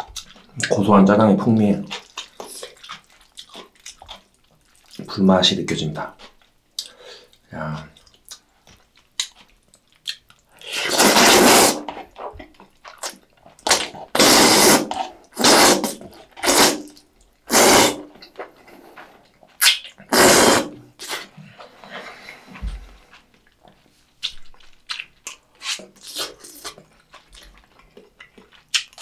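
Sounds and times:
wet chewing clicks: 0.0 - 5.1, 6.0 - 29.0
person slurping noodles: 10.6 - 12.0, 13.7 - 18.1, 19.6 - 22.5.

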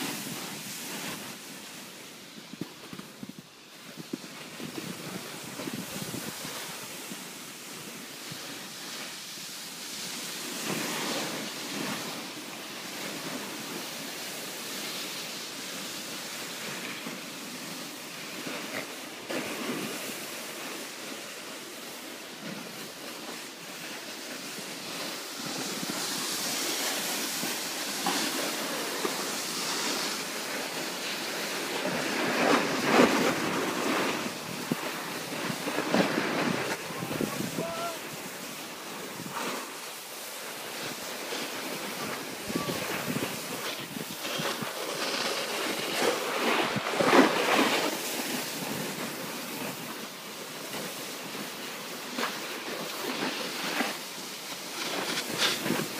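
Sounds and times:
snowboards sliding on snow: 0.0 - 55.9
wind on microphone: 2.3 - 7.3, 24.5 - 39.8, 41.6 - 49.9.

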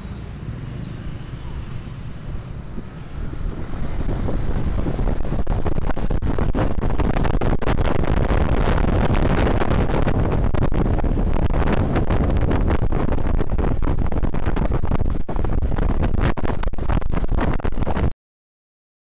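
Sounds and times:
scooter engine: 0.0 - 5.4
road traffic: 0.0 - 12.8
wind buffeting microphone: 0.0 - 18.1.

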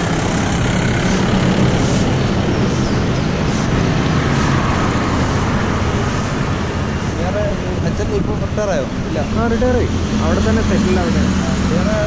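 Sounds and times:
traffic on main road: 0.0 - 12.0.

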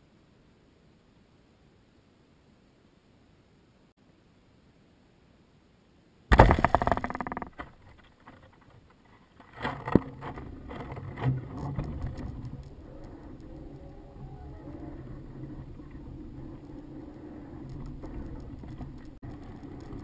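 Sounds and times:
knocks: 6.3 - 7.8
box clattering and rattling: 6.3 - 8.2.

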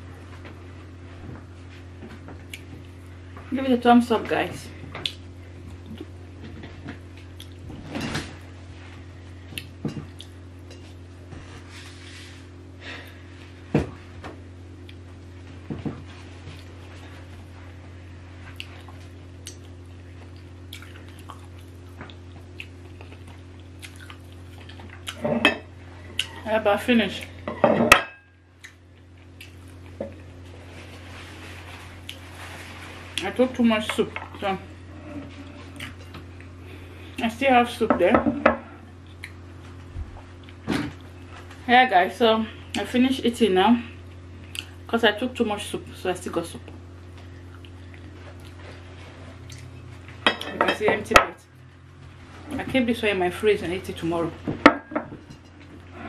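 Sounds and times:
steady low hum: 0.0 - 56.0
paper tissue rustling: 30.5 - 33.2.

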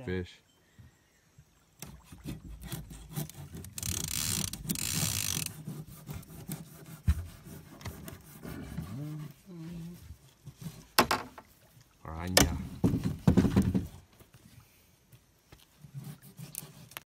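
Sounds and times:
knife sawing through fish: 2.0 - 9.5, 15.9 - 17.0
knocks on boat deck: 11.0 - 11.4, 12.3 - 14.0.

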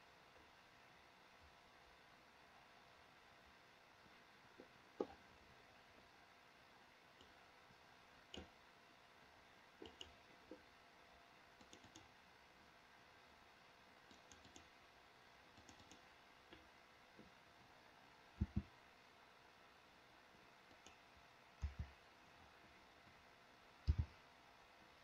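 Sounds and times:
computer mouse clicks: 8.3 - 8.5, 9.8 - 10.2, 11.6 - 12.1, 14.1 - 14.7, 15.6 - 16.7, 18.4 - 18.7, 20.7 - 21.0, 21.6 - 22.0, 23.8 - 24.2.

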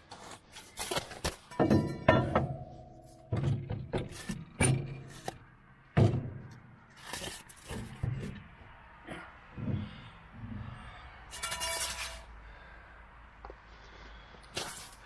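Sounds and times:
knocks and clunks: 1.2 - 12.2.

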